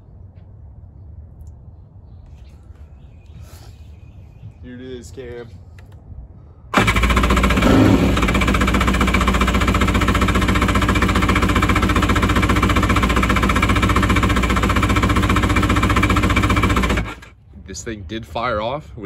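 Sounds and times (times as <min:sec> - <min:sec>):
two-stroke jet ski engine running: 0:06.8 - 0:17.4.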